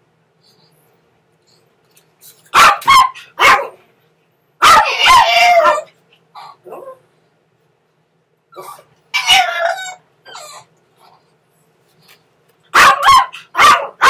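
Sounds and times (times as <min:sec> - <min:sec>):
dog yelping cry: 0:02.5 - 0:03.8, 0:04.6 - 0:07.0, 0:08.5 - 0:10.7, 0:12.7 - 0:14.0
dogs barking sharply: 0:02.5 - 0:03.9, 0:04.6 - 0:06.0, 0:12.7 - 0:14.0.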